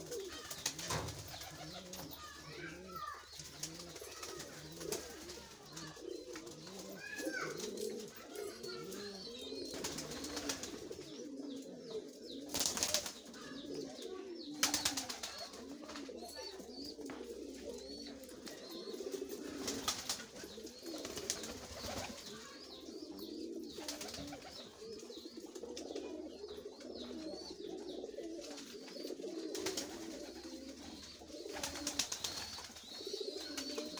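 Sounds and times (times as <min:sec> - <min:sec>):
pigeons cooing: 0:00.0 - 0:33.9
wings flapping: 0:09.7 - 0:10.9, 0:12.5 - 0:13.2, 0:14.6 - 0:16.0, 0:19.6 - 0:22.3, 0:31.5 - 0:32.8.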